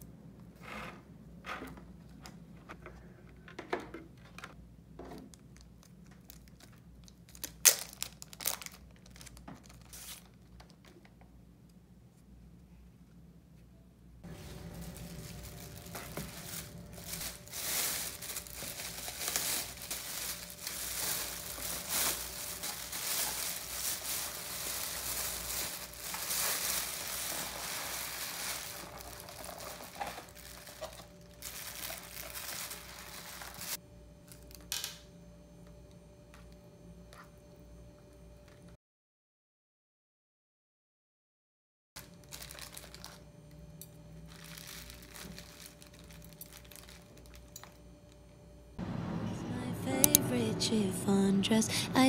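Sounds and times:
plastic bag crinkling and rustling: 0:05.3 - 0:11.0, 0:14.2 - 0:34.6, 0:42.0 - 0:43.4, 0:44.2 - 0:48.2.

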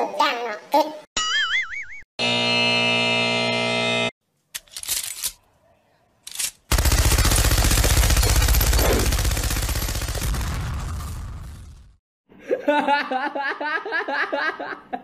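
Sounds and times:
machine gun automatic fire: 0:06.7 - 0:11.6.

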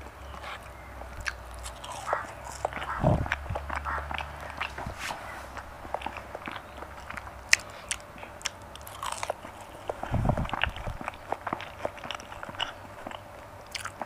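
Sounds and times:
close chewing with crunches: 0:00.0 - 0:14.0
wet mouth clicks: 0:00.4 - 0:04.9, 0:05.6 - 0:14.0
short low thud: 0:03.0 - 0:03.3.

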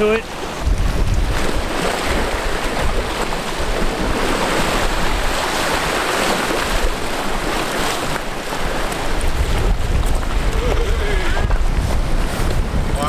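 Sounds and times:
waves washing against rocks: 0:00.0 - 0:13.0.

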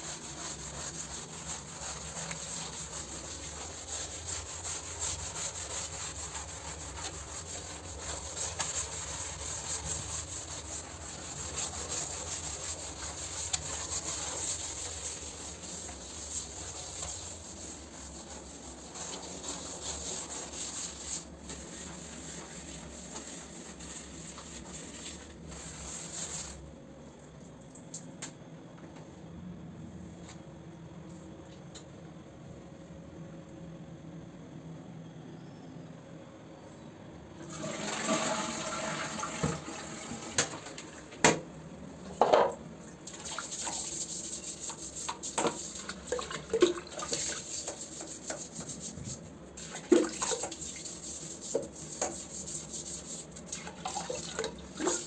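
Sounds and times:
brush scrubbing wet floor: 0:00.0 - 0:26.7, 0:37.5 - 0:40.2, 0:43.1 - 0:55.0.

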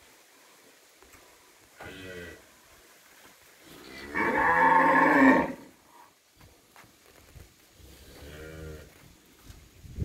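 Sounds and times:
cattle mooing: 0:03.8 - 0:05.7.

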